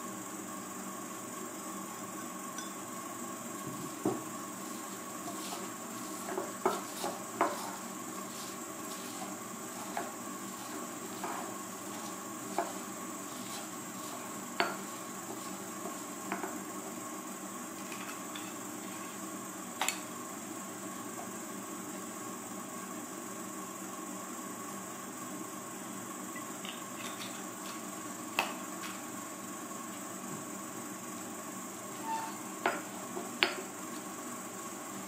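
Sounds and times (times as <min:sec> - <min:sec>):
steady background hiss: 0:00.0 - 0:35.0
pestle grinding in mortar: 0:03.7 - 0:17.0.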